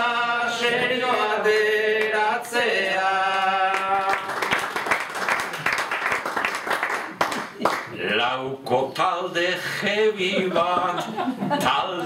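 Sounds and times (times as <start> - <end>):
man singing unaccompanied: 0.0 - 4.3, 8.0 - 12.0
audience applause: 3.3 - 7.9.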